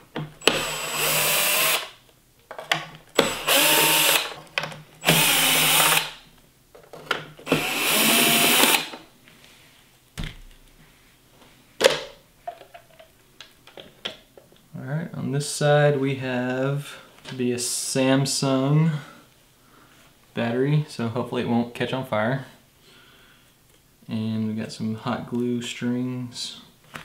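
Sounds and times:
cordless drill motor whine: 0.4s - 1.9s, 3.2s - 4.3s, 5.0s - 6.2s, 7.5s - 8.9s.

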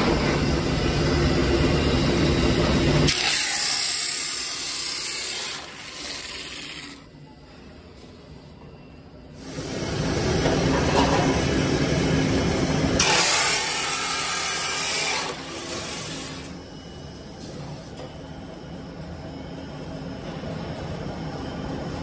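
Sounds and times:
production line running: 0.0s - 7.1s
automatic cutter sawing pipe: 2.9s - 7.1s, 13.0s - 16.5s.

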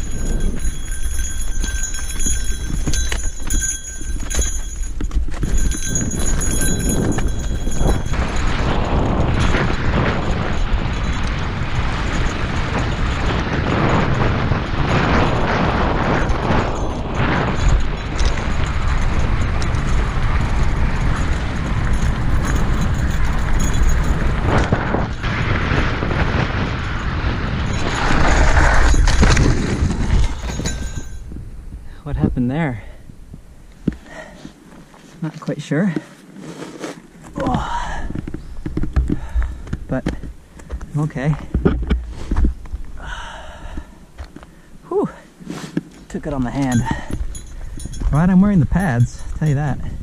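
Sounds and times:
bike tyres crunching on gravel: 0.0s - 31.2s, 34.6s - 43.0s
wind rushing over microphone: 0.0s - 34.4s, 37.3s - 50.0s
bike crash sliding in gravel: 25.2s - 30.6s.

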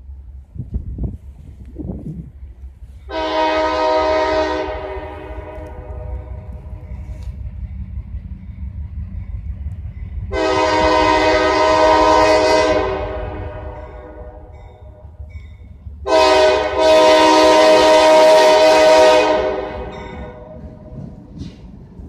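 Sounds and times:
steady low rumble: 0.0s - 3.1s
locomotive air horn blasts: 3.1s - 7.2s, 10.3s - 14.6s, 16.0s - 20.6s.

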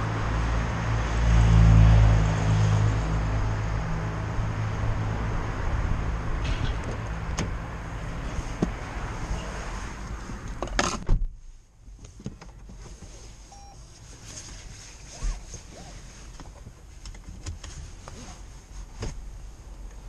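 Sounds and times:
car door shutting: 10.6s - 11.4s
short beep: 13.5s - 13.8s.

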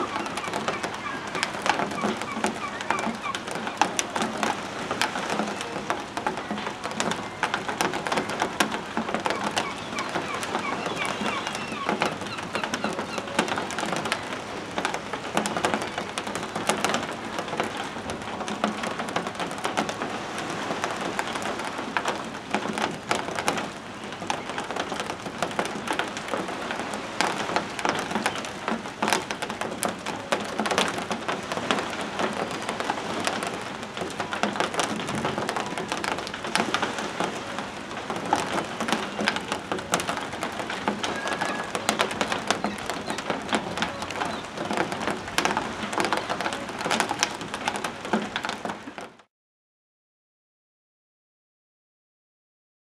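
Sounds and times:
gull calls: 0.0s - 4.2s, 9.2s - 13.9s, 40.9s - 44.7s
gulls splashing and flapping: 0.0s - 49.2s.

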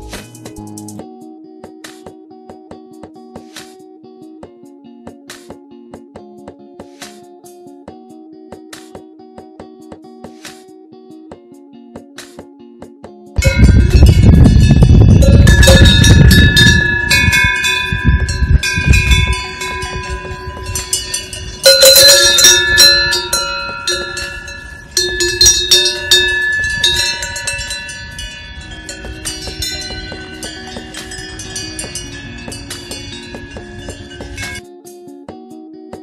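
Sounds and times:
cowbells clanking: 13.4s - 34.6s
low rumble: 13.4s - 34.6s.

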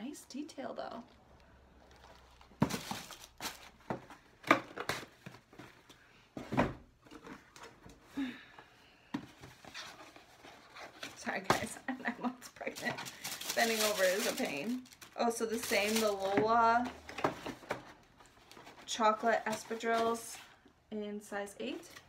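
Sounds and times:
packaging rustling: 1.0s - 6.0s, 12.5s - 20.3s.

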